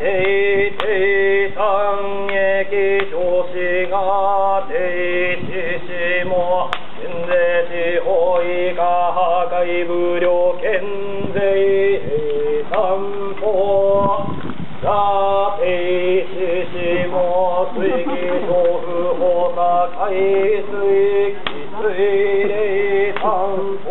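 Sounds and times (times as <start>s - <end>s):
monks chanting: 14.8s - 23.9s.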